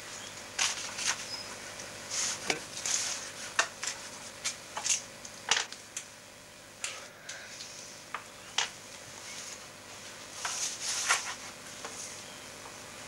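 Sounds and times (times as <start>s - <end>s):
paper rustling: 0.6s - 1.3s, 2.1s - 5.0s, 10.2s - 12.2s.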